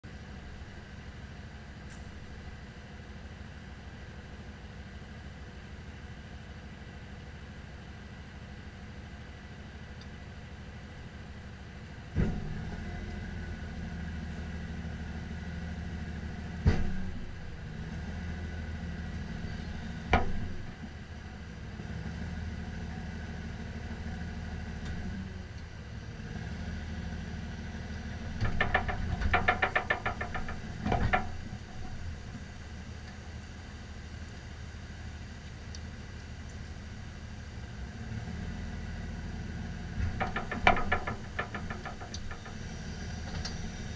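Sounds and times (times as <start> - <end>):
sharp knocks: 20.1 - 20.8, 28.4 - 32.6, 40.0 - 43.9
truck engine idling: 27.7 - 37.8, 38.8 - 43.9.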